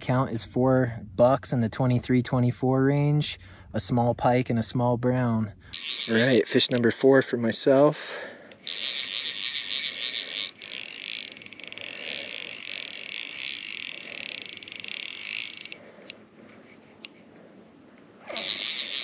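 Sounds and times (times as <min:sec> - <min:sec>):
fishing reel ratchet clicking: 0:05.7 - 0:06.9, 0:08.5 - 0:16.2, 0:18.2 - 0:19.0.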